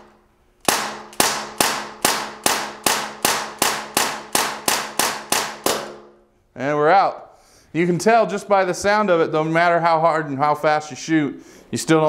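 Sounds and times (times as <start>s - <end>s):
air pistol shots popping: 0.6s - 6.2s.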